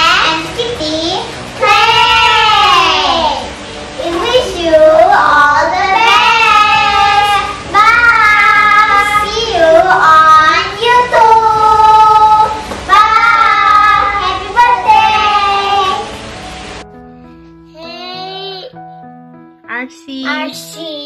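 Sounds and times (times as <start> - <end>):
children singing: 0.0 - 16.1.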